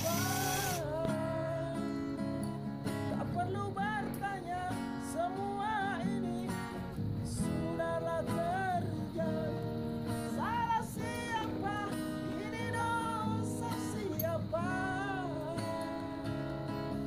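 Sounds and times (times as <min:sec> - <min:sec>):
song with guitar accompaniment: 0:00.0 - 0:17.0.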